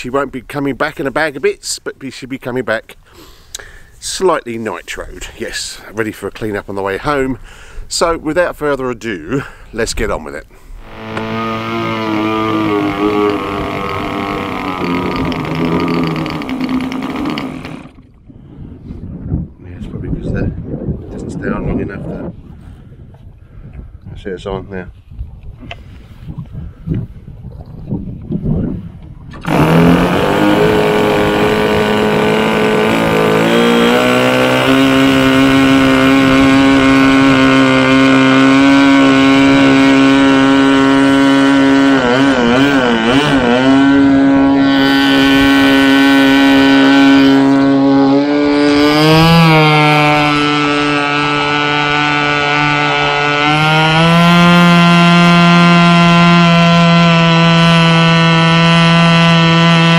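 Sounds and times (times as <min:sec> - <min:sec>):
model airplane engine buzzing: 0:10.6 - 0:18.2, 0:29.3 - 0:59.9.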